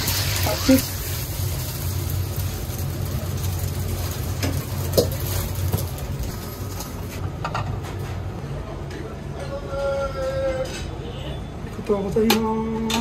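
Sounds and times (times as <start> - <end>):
egg sizzling in wok: 0.0 - 7.2
gas burner roaring: 0.0 - 8.8.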